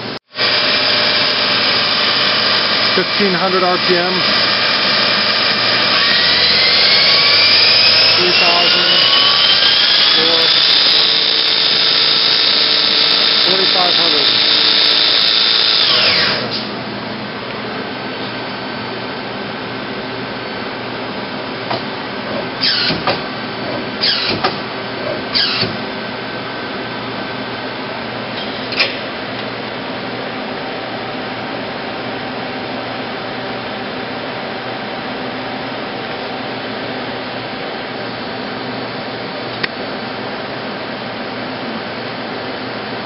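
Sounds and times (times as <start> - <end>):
short machine whines: 0.0 - 16.8, 22.5 - 25.9
lathe machine hum: 0.0 - 43.0.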